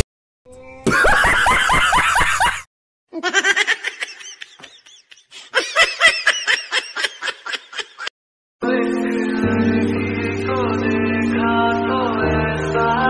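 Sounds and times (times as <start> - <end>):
man laughing hard: 0.9 - 8.1.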